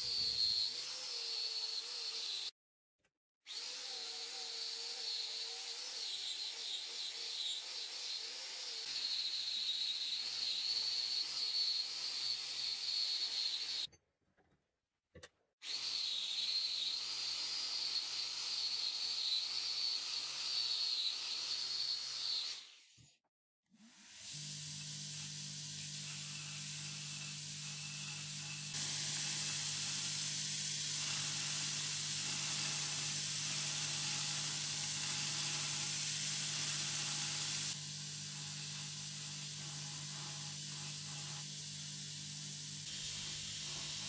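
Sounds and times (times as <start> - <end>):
power tool motor whine: 23.8 - 44.0.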